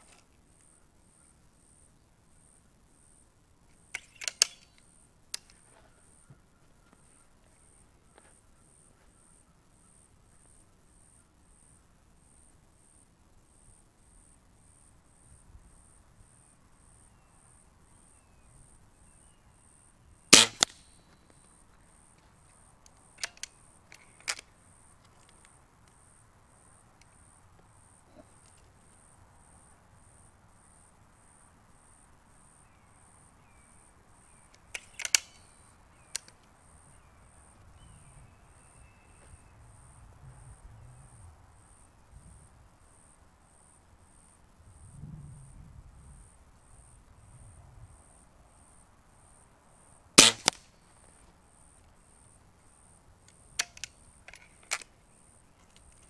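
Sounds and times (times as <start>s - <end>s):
rifle cocking clicks: 3.9s - 5.6s, 20.3s - 20.9s, 22.9s - 24.4s, 34.5s - 36.4s, 50.2s - 50.6s, 53.3s - 54.9s
air rifle shot: 20.3s - 20.8s, 50.2s - 50.6s.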